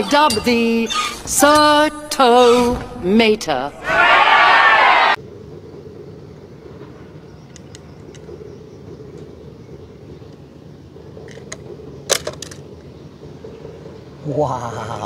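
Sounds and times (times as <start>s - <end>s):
low outdoor rumble: 0.0s - 15.0s
toy cars clattering in a basket: 11.3s - 12.6s.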